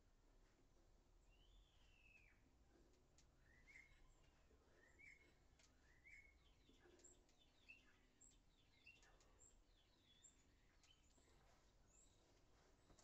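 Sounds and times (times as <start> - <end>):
birds chirping: 3.4 - 13.0.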